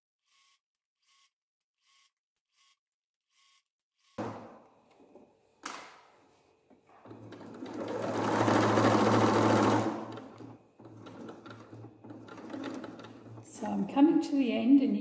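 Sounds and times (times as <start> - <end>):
sewing machine stitching: 6.9 - 13.8.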